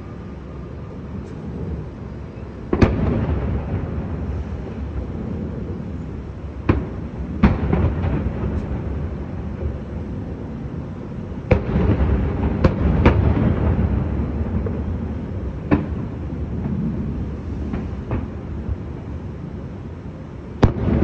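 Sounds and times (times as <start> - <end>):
low rumble of echoing reports: 0.0 - 21.0
distant firework booms: 2.7 - 4.4, 6.6 - 9.2, 11.4 - 18.4, 20.6 - 21.0.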